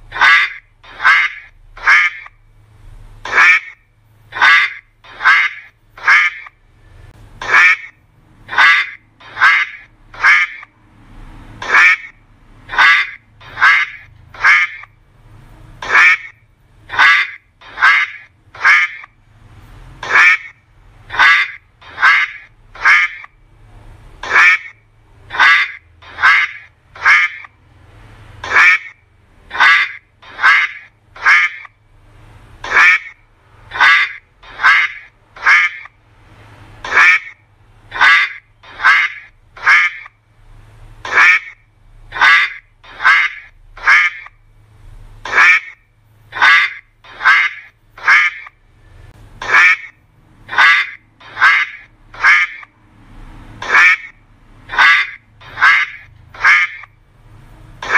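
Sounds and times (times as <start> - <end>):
duck quacking loudly: 0.1 - 2.4, 3.2 - 6.6, 7.4 - 10.7, 11.5 - 14.9, 15.8 - 19.2, 20.0 - 23.4, 24.2 - 27.6, 28.4 - 31.8, 32.6 - 36.0, 36.6 - 40.2, 41.0 - 44.4, 45.2 - 48.6, 49.4 - 52.7, 53.6 - 57.0.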